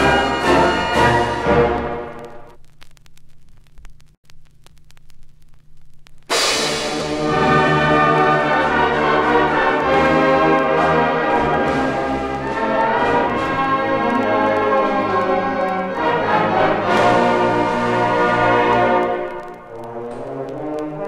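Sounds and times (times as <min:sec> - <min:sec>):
concert band brass playing: 0:06.3 - 0:21.0.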